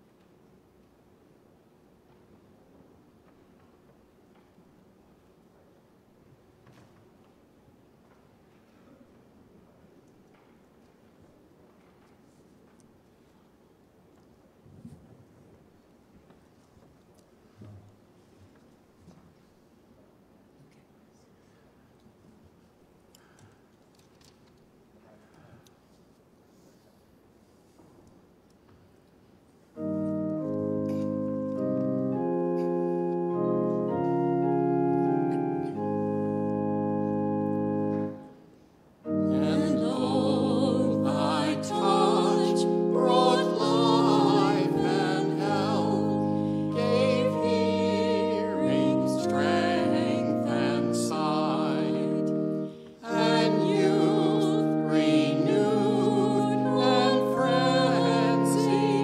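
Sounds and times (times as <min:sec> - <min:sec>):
church organ chords: 0:29.8 - 0:59.0
singing: 0:39.1 - 0:59.0.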